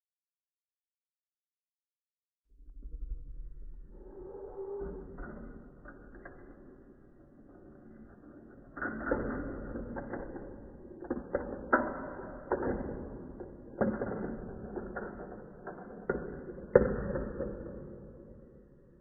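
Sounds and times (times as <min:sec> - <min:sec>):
marbles rolling on plastic tracks: 0:05.5 - 0:18.2.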